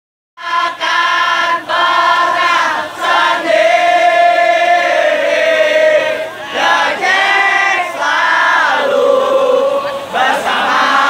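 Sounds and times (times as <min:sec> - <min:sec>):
crowd singing a chant: 0:00.4 - 0:11.0.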